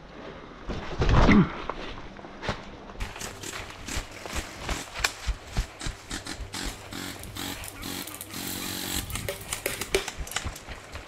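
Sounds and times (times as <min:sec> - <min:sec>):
footsteps in dry leaves: 0:03.0 - 0:11.0
electric gun firing bursts: 0:06.1 - 0:10.2.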